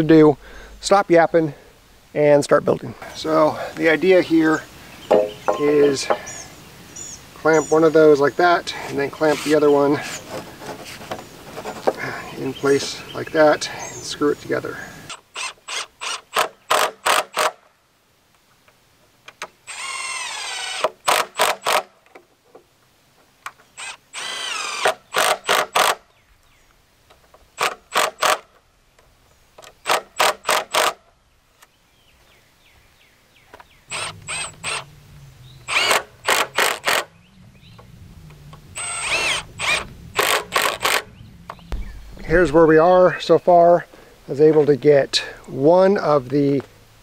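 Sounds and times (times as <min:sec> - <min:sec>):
impact driver driving screws: 0:15.1 - 0:17.6, 0:19.7 - 0:21.9, 0:23.8 - 0:26.0, 0:27.6 - 0:28.5, 0:29.6 - 0:31.0, 0:33.9 - 0:34.8, 0:35.7 - 0:37.1, 0:38.8 - 0:41.1.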